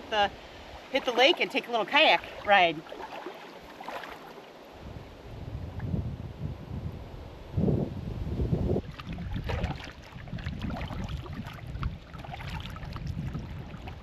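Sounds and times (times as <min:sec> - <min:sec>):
wind rumbling on microphone: 0:00.0 - 0:14.0
paddle splashing in water: 0:00.7 - 0:04.6, 0:08.8 - 0:14.0.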